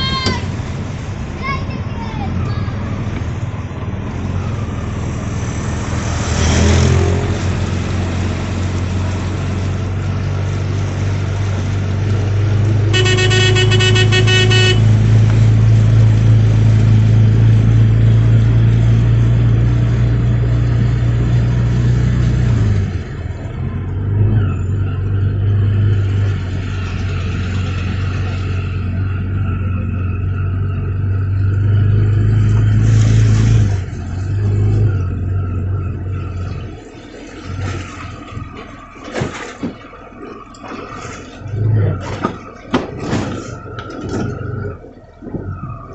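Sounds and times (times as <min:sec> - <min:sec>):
auto-rickshaw engine humming: 0:00.0 - 0:45.9
motorcycle splashing through water: 0:04.3 - 0:23.5, 0:32.2 - 0:43.7
vehicle horn: 0:12.9 - 0:15.2.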